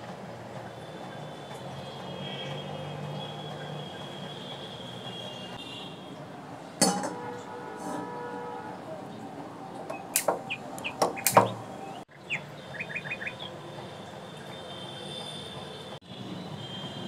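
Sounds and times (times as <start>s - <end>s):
metal pan knocking on hob: 6.8s - 7.4s.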